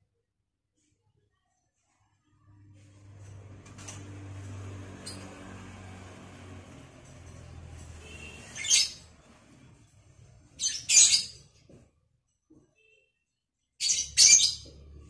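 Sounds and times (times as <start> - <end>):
lovebird harsh calls: 8.5 - 9.0.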